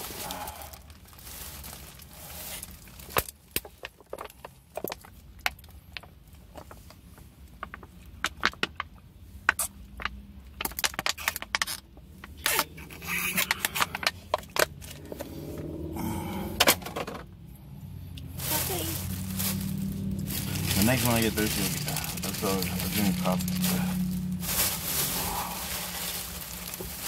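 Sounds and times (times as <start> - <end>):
plastic bottle crinkling: 0.0 - 15.2, 18.3 - 27.0.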